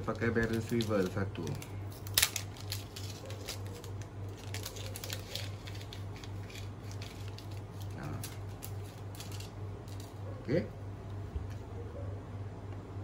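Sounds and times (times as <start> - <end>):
fishing hooks and line rustling: 0.1 - 10.2.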